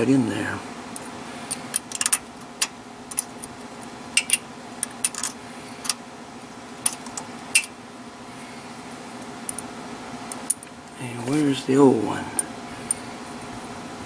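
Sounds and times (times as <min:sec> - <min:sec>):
steady low hum: 0:00.0 - 0:14.0
metal bolts clicking: 0:01.5 - 0:03.6, 0:04.2 - 0:06.0, 0:06.8 - 0:07.7.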